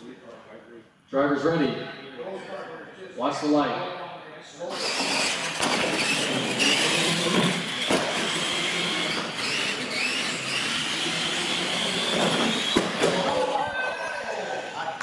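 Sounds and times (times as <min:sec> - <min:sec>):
toy truck motors whining: 0:04.7 - 0:13.6.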